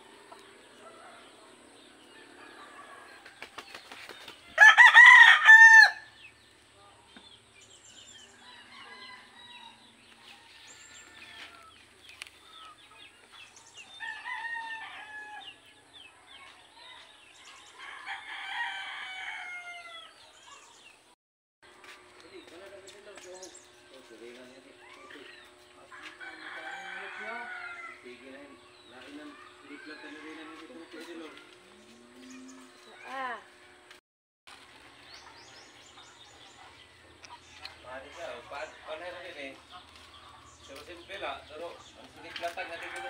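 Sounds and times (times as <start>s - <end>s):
rooster crowing: 4.6s - 6.1s, 8.3s - 11.8s, 14.0s - 15.6s, 17.8s - 20.2s, 25.8s - 28.2s.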